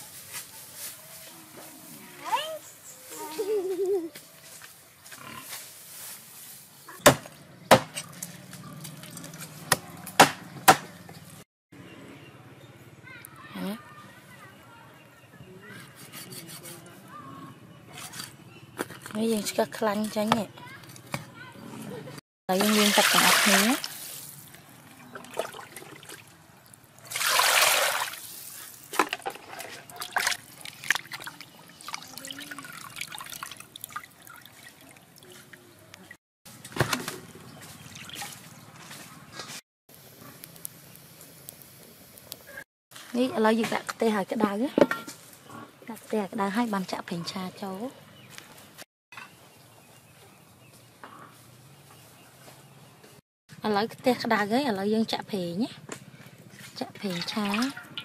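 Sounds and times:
knife chopping on wooden board: 9.7s - 10.9s
water splash: 22.5s - 24.3s, 27.0s - 29.0s
water sloshing and dripping: 22.5s - 35.7s, 37.6s - 39.1s, 56.8s - 58.0s.

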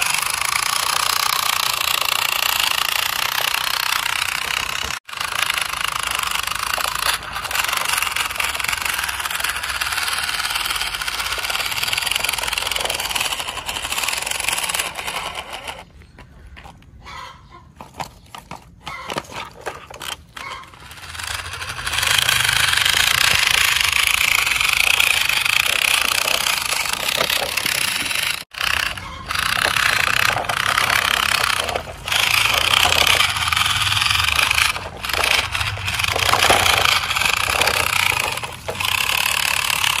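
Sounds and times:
toy trucks rattling over stones: 0.0s - 40.0s.

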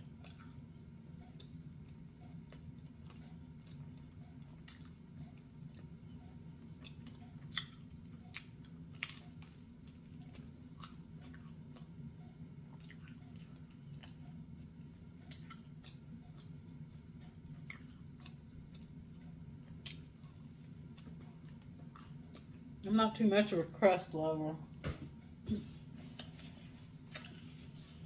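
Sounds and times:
steady low hum: 0.0s - 28.0s
chewing pizza crust: 0.1s - 0.7s, 1.3s - 12.0s, 12.7s - 22.7s.

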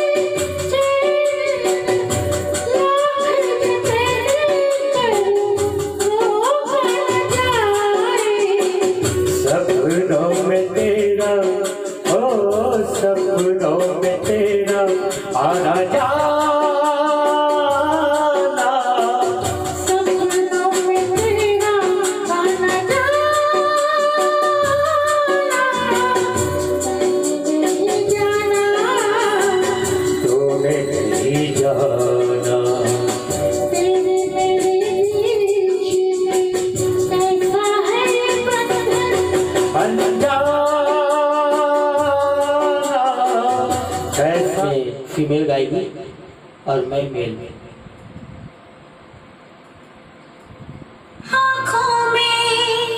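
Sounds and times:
backing music with shaker beat: 0.0s - 45.0s
instrumental accompaniment: 0.0s - 52.9s
man singing into microphone: 9.3s - 20.2s, 25.1s - 35.0s, 39.6s - 45.3s.

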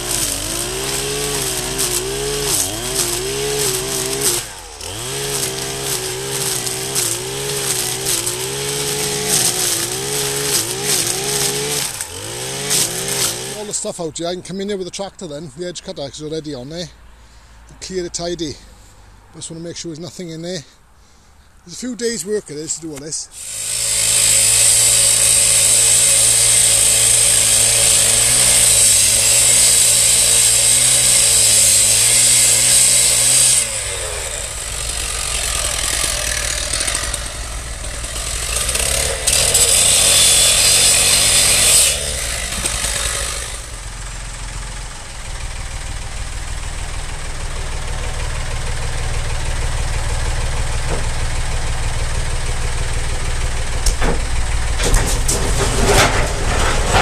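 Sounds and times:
disc cutter grinding steel: 0.0s - 13.9s, 23.0s - 43.8s, 53.1s - 57.0s
tractor engine running: 0.0s - 16.8s, 21.8s - 57.0s.

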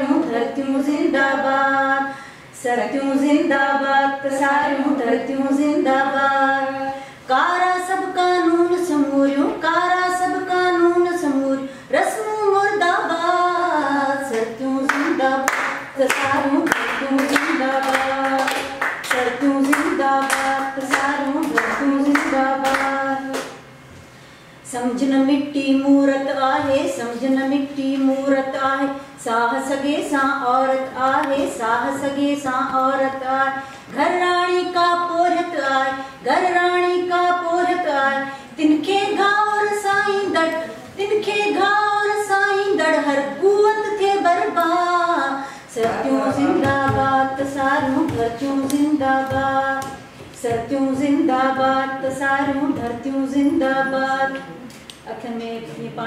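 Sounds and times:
woman singing unaccompanied: 0.0s - 23.6s, 24.7s - 56.0s
people clapping along: 14.3s - 23.7s, 45.7s - 54.9s.

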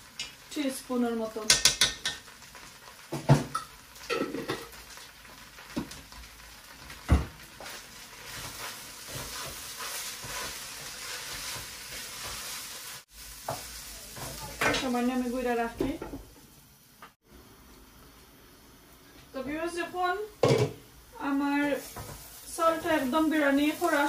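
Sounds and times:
rice sizzling in oil: 0.0s - 24.0s
wooden spoon knocking pot: 1.5s - 2.2s.

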